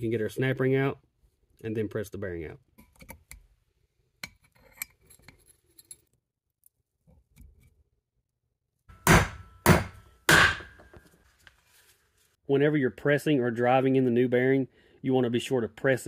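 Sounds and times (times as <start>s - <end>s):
hammer striking metal drift: 8.9s - 10.8s.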